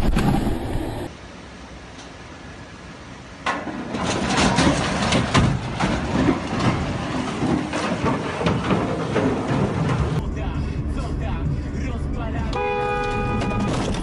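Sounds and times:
falling rock and debris clatter: 3.4 - 10.2.

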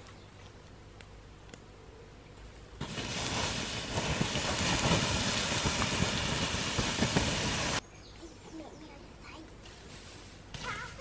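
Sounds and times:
water hissing on hot embers: 2.8 - 7.8, 9.6 - 11.0.

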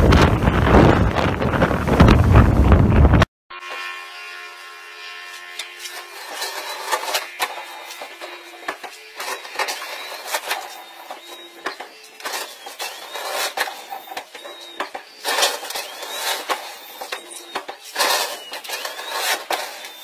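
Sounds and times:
boat hull grinding over gravel: 5.4 - 20.0.

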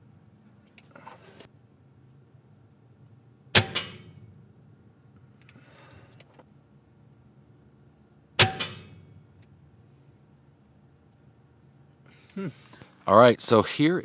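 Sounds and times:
air rifle shots: 3.5 - 4.4, 8.4 - 9.3.

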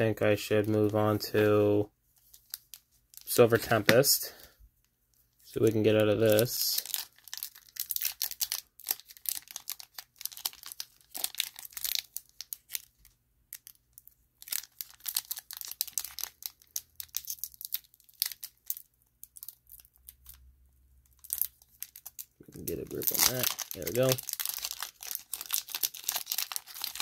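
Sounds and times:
foil wrapper crinkling: 5.5 - 20.5, 21.1 - 27.0.

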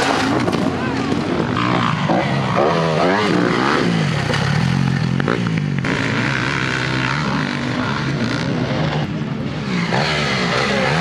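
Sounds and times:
dirt bike engine revving: 0.0 - 11.0
other motorbike engines: 0.0 - 11.0.

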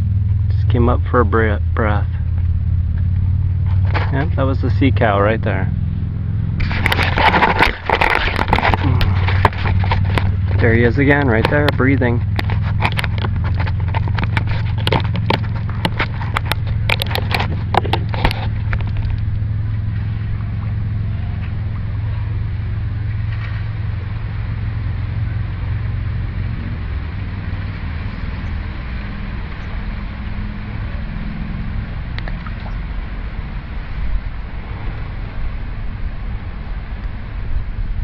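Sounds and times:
constant hum: 0.0 - 38.0
low rumble: 0.0 - 38.0.

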